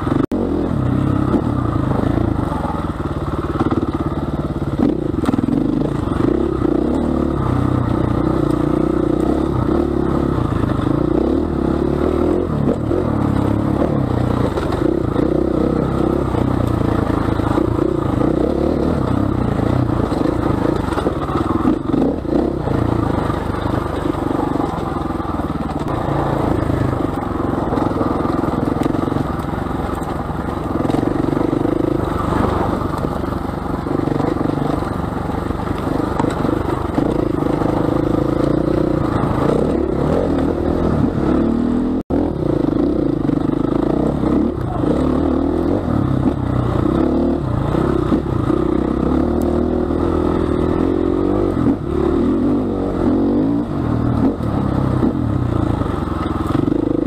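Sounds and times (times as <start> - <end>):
motorcycle engine revving: 0.0 - 57.0.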